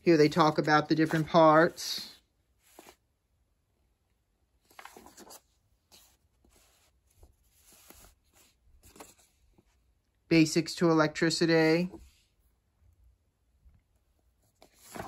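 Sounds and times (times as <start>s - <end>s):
paper pages rustling: 0.0s - 3.0s, 4.6s - 9.7s, 14.5s - 15.0s.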